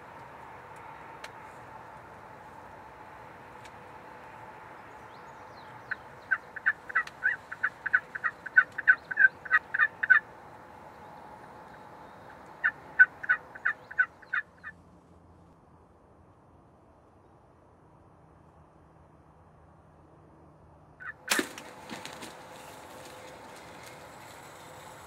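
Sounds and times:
wild turkey yelping: 0:05.8 - 0:14.7, 0:21.0 - 0:21.5.

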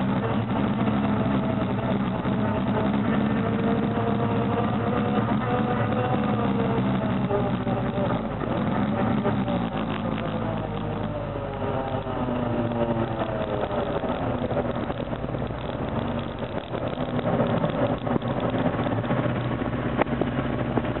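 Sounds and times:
atv engines running: 0:00.0 - 0:21.0.

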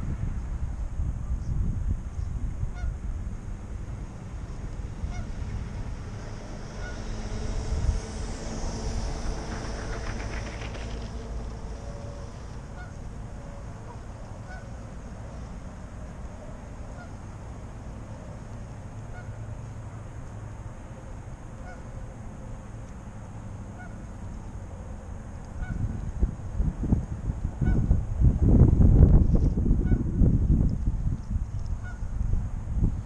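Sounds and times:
steady low rumble: 0:00.0 - 0:33.0
geese honking faintly: 0:02.6 - 0:17.4, 0:19.0 - 0:20.1, 0:20.9 - 0:22.6, 0:23.7 - 0:25.9, 0:27.6 - 0:27.9, 0:31.7 - 0:32.1.

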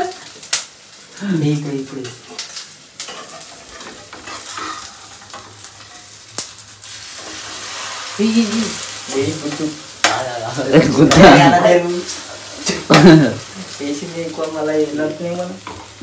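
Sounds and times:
food sizzling in a pan: 0:00.0 - 0:16.0
stirring in a pan: 0:01.9 - 0:14.5.

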